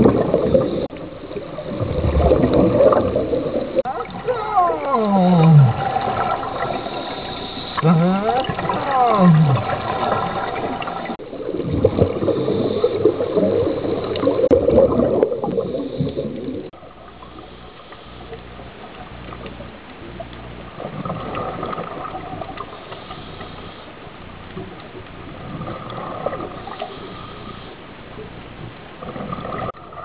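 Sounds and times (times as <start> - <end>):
underwater regulator bubbling: 0.0 - 30.0
underwater hiss: 4.6 - 11.2, 12.1 - 14.5, 15.4 - 19.0, 21.3 - 27.9.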